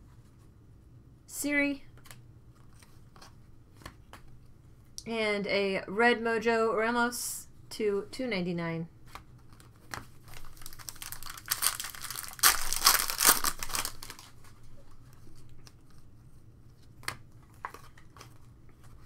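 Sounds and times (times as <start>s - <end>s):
cards rustling and clicking: 9.1s - 16.1s, 16.8s - 19.0s
foil wrapper tearing and crinkling: 10.3s - 14.4s.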